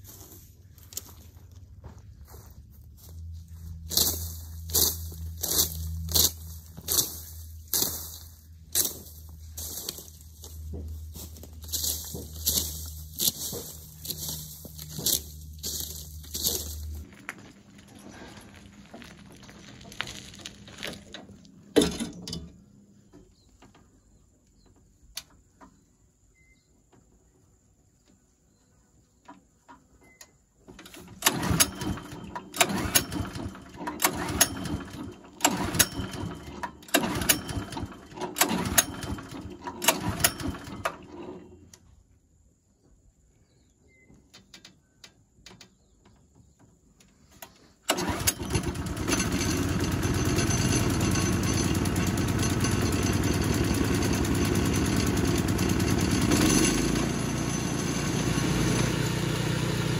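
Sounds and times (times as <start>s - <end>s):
recoil cord pulls: 30.7s - 41.6s, 47.4s - 58.9s
petrol engine chuffing without starting: 30.7s - 41.8s, 47.4s - 59.9s.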